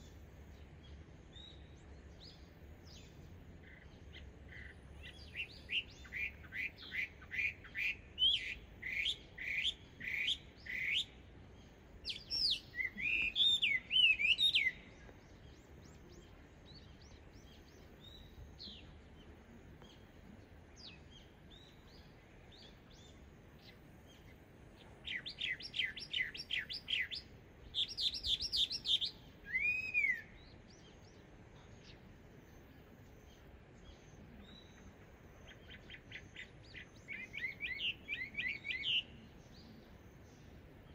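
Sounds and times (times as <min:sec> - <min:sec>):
faint bird chirps: 0:00.0 - 0:40.9
bird singing whistled phrases: 0:12.1 - 0:14.9, 0:27.8 - 0:30.6, 0:35.7 - 0:39.2.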